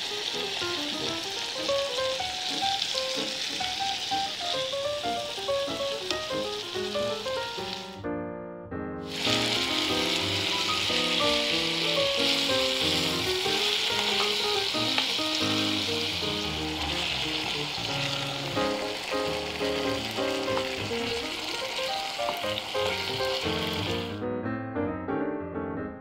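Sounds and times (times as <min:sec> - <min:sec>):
food sizzling in a frying pan: 0:00.0 - 0:08.0, 0:09.0 - 0:24.1
background music melody: 0:00.0 - 0:26.0.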